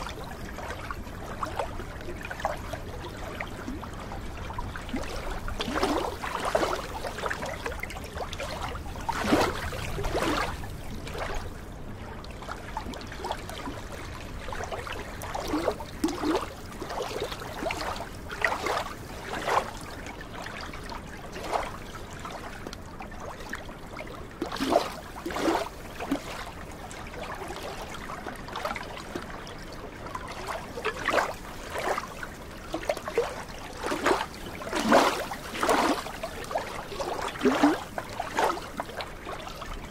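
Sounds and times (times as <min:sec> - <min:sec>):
small waves lapping on shore: 0:00.0 - 0:39.9.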